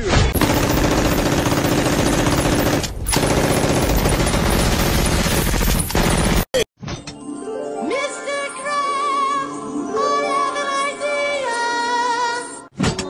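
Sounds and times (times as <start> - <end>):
machine gun firing bursts: 0.3 - 6.5.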